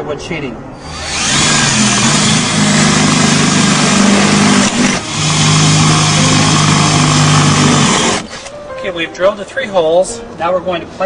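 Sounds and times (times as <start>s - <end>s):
cordless drill boring metal: 0.8s - 8.5s.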